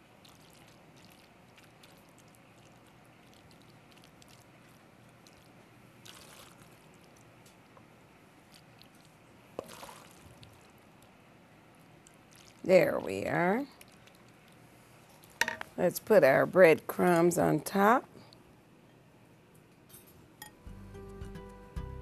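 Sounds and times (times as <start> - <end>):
wet squishing of macaroni: 0.0 - 7.8, 8.4 - 15.4.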